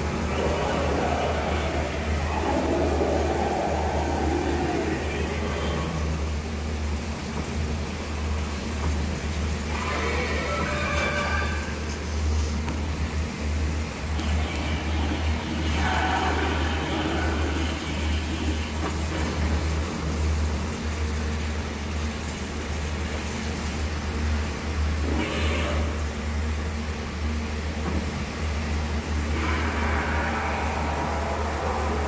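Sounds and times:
screeching monster calls: 0:00.0 - 0:06.2, 0:14.9 - 0:18.2, 0:29.2 - 0:32.0
steady low rumble: 0:00.0 - 0:09.8.

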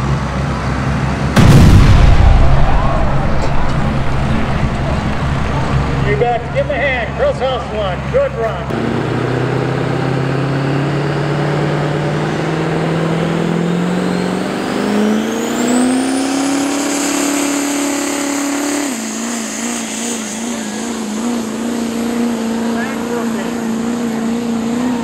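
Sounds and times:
diesel engine under load: 0:00.0 - 0:25.0.

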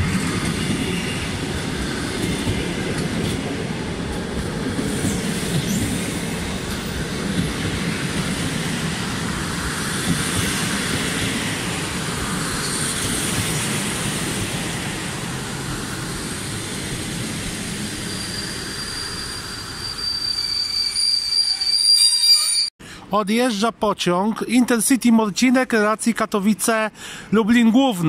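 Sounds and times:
train wheels rumbling on rails: 0:00.0 - 0:21.7.

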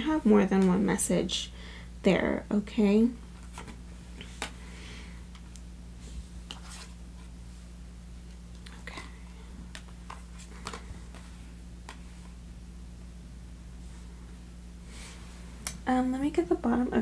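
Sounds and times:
faint low hum: 0:00.0 - 0:17.0
cards flicking and tapping: 0:08.2 - 0:12.4.

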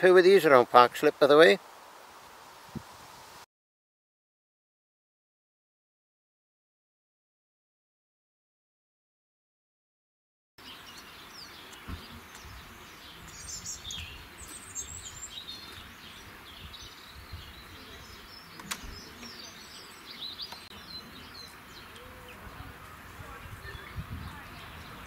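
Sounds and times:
background hiss: 0:00.0 - 0:03.5, 0:10.6 - 0:25.0
songbirds chirping: 0:10.6 - 0:25.0
sharp click: 0:18.6 - 0:18.9.

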